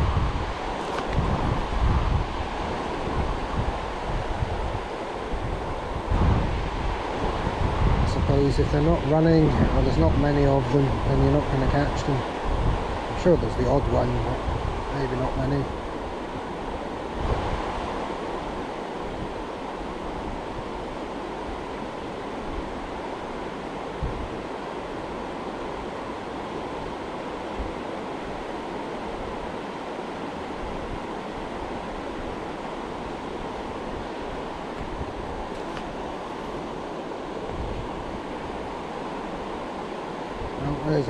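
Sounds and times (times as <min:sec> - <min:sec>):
river water rushing: 0:00.0 - 0:07.9.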